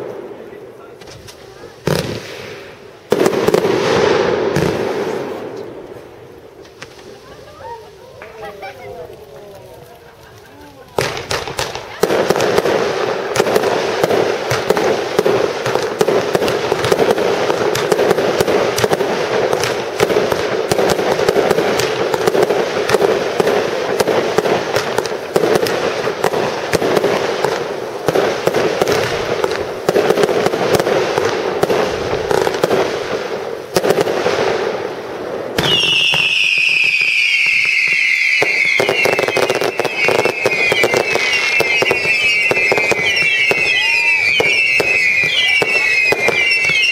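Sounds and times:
fireworks bangs and crackling: 0.0s - 46.9s
falling firework whistles: 35.6s - 46.9s.

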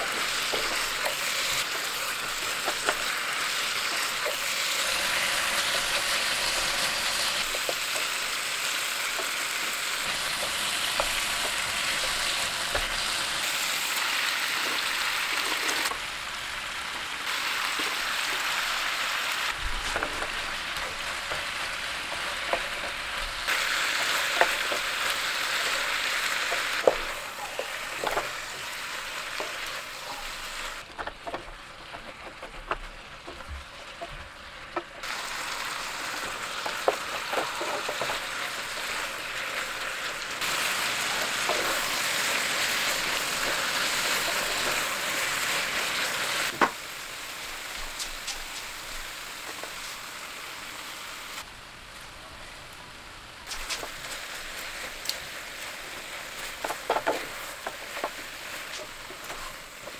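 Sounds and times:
vegetables sizzling in a frying pan: 0.0s - 59.9s.

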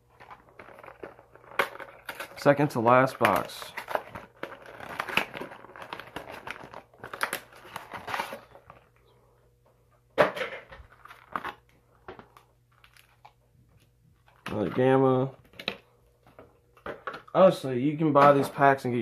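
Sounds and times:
foil wrapper crinkling and tearing: 0.2s - 8.9s, 10.9s - 11.7s, 12.3s - 14.6s.

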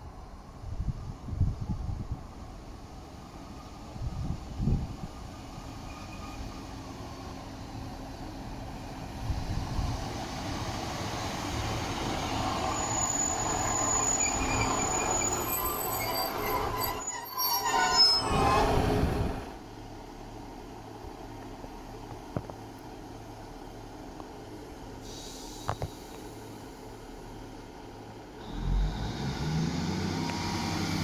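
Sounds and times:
diesel train braking: 5.4s - 7.2s, 10.0s - 19.6s, 25.0s - 26.7s, 28.4s - 31.0s
brakes squealing: 5.7s - 6.7s, 12.0s - 19.3s.

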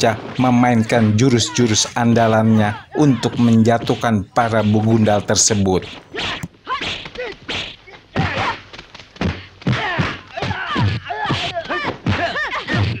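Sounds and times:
fighters shouting and grunting: 0.0s - 13.0s
punches and kicks thudding: 9.2s - 13.0s.

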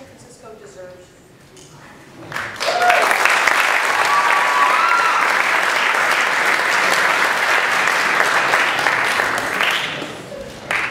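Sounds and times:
audience applauding: 2.3s - 10.9s.

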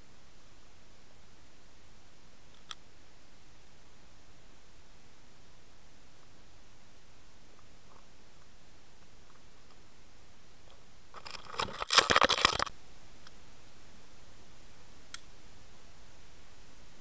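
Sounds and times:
scratching and clicking on gravel: 10.7s - 12.7s.

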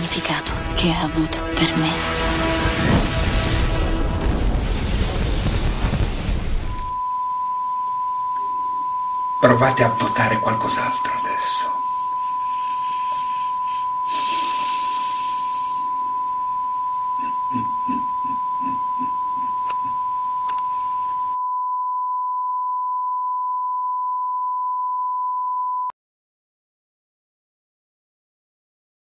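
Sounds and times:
continuous electronic tone: 6.6s - 21.4s
brief hiss: 14.1s - 15.8s.

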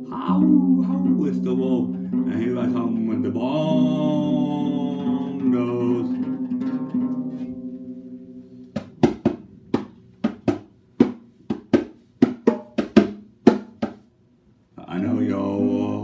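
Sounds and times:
acoustic guitar chord: 0.0s - 10.2s
bongos slapped by hand: 8.8s - 14.1s.

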